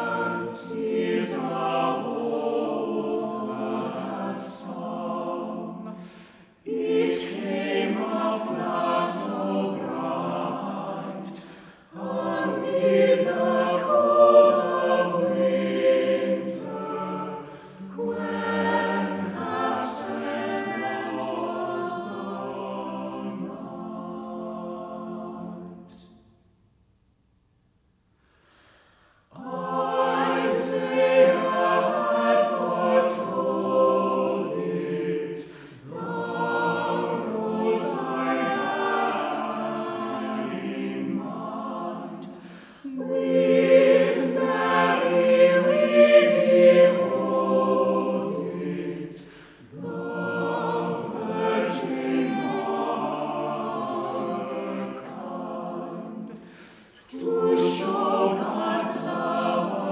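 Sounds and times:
mixed choir singing a cappella: 0.0s - 26.3s, 28.5s - 59.9s.

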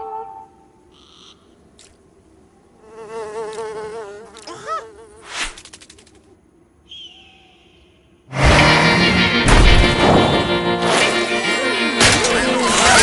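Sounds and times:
cartoon fly buzzing: 2.8s - 6.4s.

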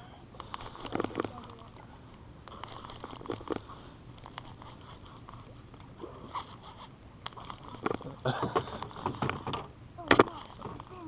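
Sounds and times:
fishing reel whirring with clicks: 0.4s - 1.8s, 2.5s - 5.5s, 6.3s - 8.1s, 8.8s - 11.0s.

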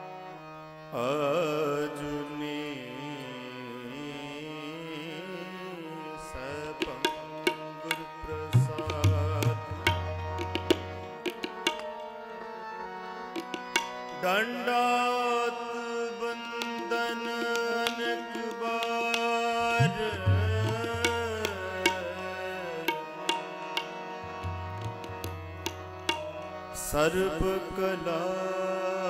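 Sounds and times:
harmonium holding notes: 0.0s - 29.0s
wordless singing: 0.9s - 10.5s, 13.9s - 24.2s, 26.3s - 29.0s
tabla strokes: 6.9s - 12.1s, 19.6s - 22.1s, 22.9s - 26.5s.

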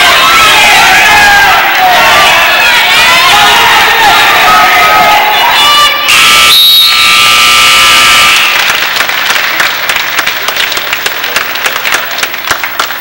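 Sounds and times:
crowd cheering and yelling: 0.0s - 13.0s
clapping and applause: 7.8s - 13.0s.

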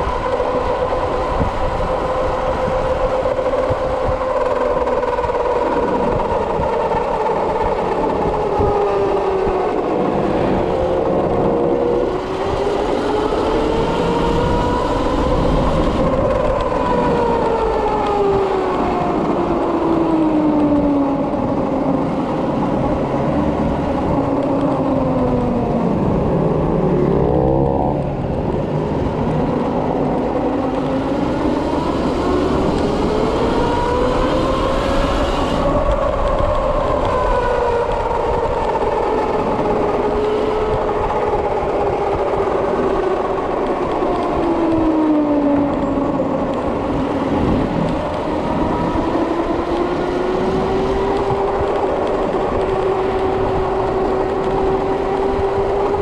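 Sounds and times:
electric motor whine: 0.0s - 56.0s
wind and road noise: 0.0s - 56.0s.

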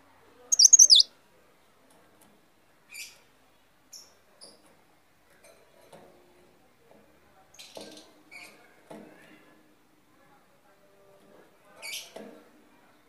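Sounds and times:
songbird short chirps: 0.5s - 1.0s.

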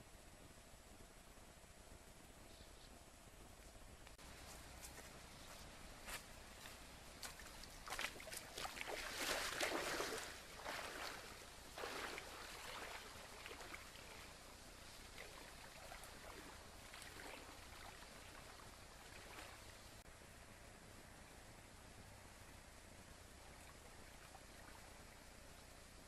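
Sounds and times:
water splashing as person wades: 7.2s - 19.7s.

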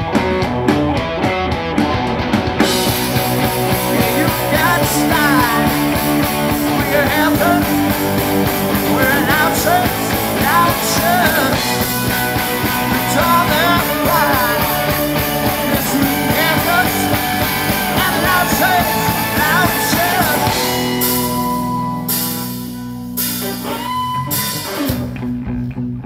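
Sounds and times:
live rock band playing: 0.0s - 26.0s
person singing: 3.5s - 21.5s.

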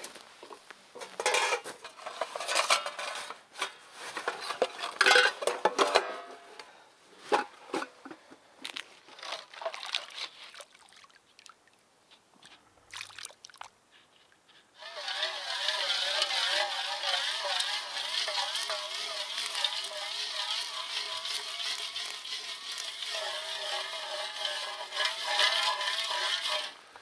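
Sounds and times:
metal utensil scraping cookware: 1.2s - 6.4s, 14.8s - 26.8s.

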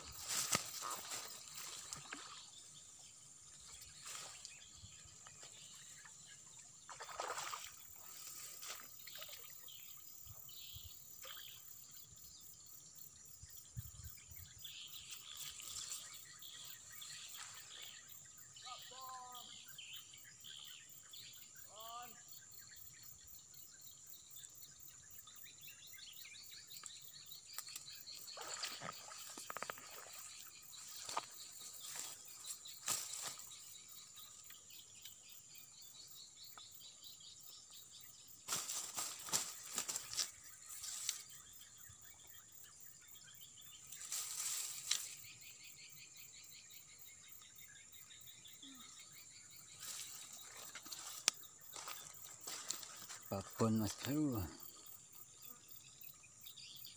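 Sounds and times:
rustling in grass: 0.0s - 2.8s, 3.6s - 5.8s, 7.0s - 9.4s, 28.3s - 33.8s, 38.4s - 41.4s, 43.8s - 45.4s, 49.8s - 53.3s
insects chirring: 0.0s - 56.9s.

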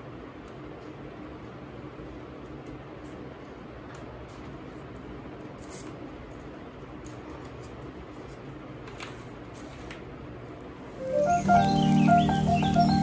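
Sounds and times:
steady low hum: 10.6s - 13.0s.

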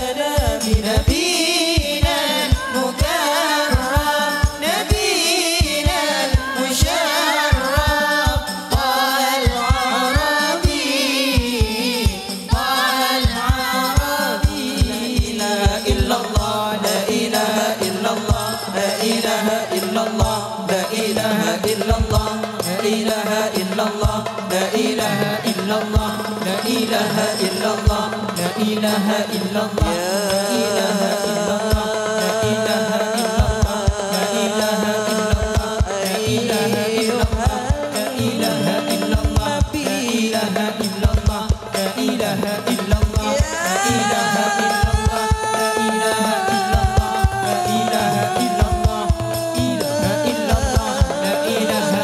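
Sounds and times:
group singing in chorus: 0.0s - 52.0s.

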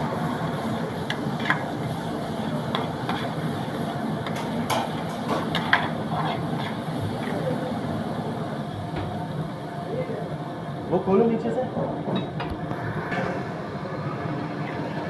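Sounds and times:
gas burner rumble: 0.0s - 15.0s
metal ladle scraping frying pan: 1.0s - 7.5s.

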